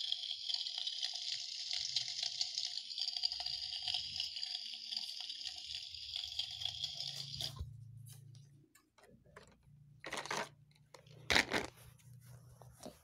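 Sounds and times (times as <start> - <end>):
plastic toys clattering: 9.0 - 11.8.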